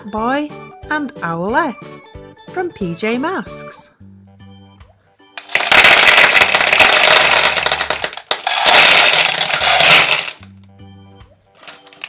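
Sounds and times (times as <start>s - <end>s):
gumballs clattering into plastic bowl: 5.4s - 10.5s, 11.6s - 12.0s.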